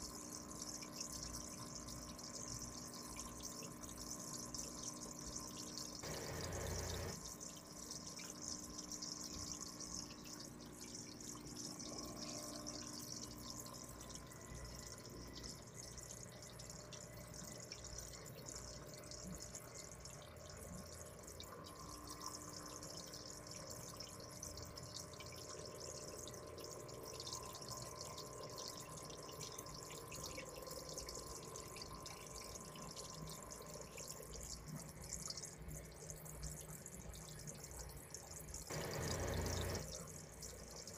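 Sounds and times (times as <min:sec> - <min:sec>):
faint steady hum: 0:00.0 - 0:40.9
air stone bubbling: 0:06.0 - 0:07.2.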